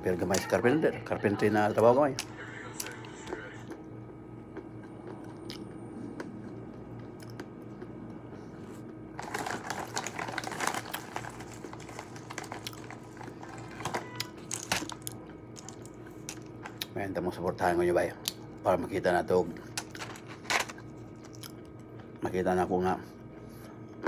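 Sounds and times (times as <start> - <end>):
pistachio shells crackling: 9.2 - 16.8.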